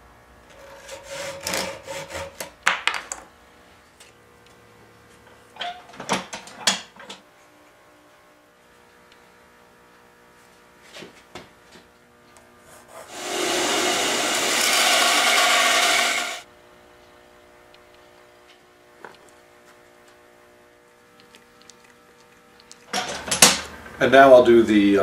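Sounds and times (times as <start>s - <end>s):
bandsaw cutting wood: 0.8s - 2.4s, 12.8s - 16.5s.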